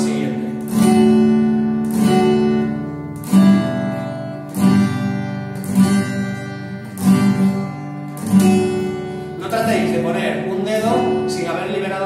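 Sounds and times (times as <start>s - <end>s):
acoustic guitar strumming chords: 0.0s - 12.0s.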